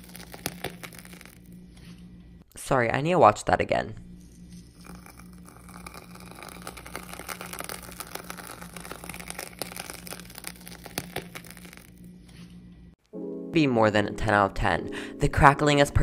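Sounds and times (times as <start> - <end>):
body butter crackling and squishing: 0.0 - 1.5, 4.4 - 12.1.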